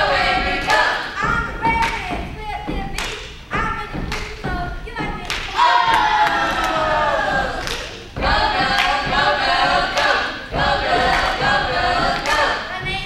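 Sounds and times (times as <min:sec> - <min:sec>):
children singing: 0:00.0 - 0:01.8, 0:05.5 - 0:13.0
thumps: 0:00.0 - 0:13.0.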